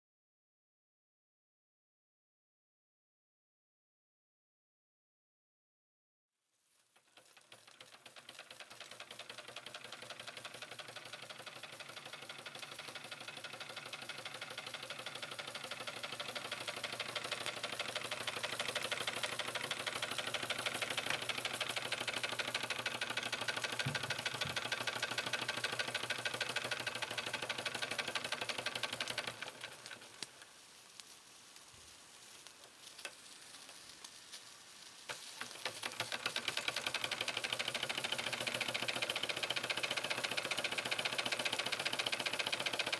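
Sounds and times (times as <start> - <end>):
toy steam engine ticking: 6.8 - 31.1, 32.3 - 34.2, 35.0 - 42.9
steam hissing: 7.0 - 42.9.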